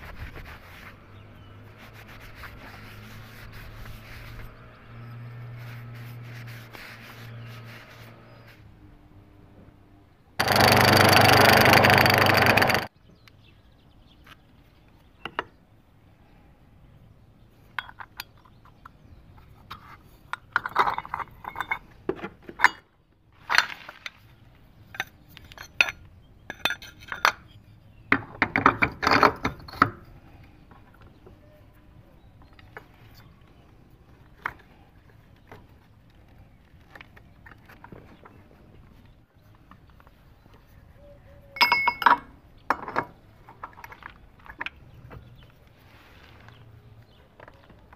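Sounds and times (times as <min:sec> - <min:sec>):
light metal clicks and clinks: 0:41.6 - 0:42.3.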